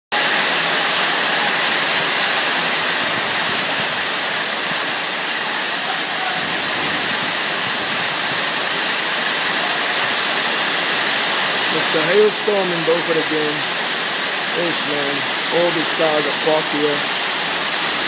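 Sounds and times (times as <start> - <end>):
hail and rain pelting cars: 0.1 - 18.0.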